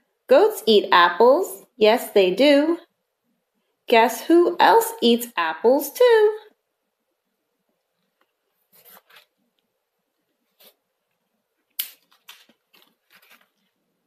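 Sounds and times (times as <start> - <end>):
book pages rustling and flapping: 7.9 - 11.2, 12.0 - 14.0.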